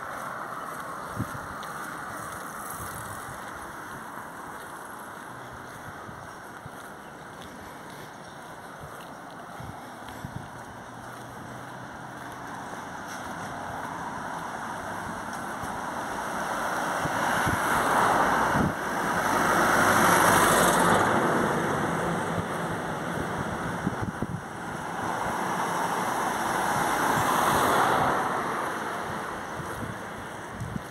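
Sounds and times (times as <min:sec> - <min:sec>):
vehicle driving past: 0:10.8 - 0:30.0.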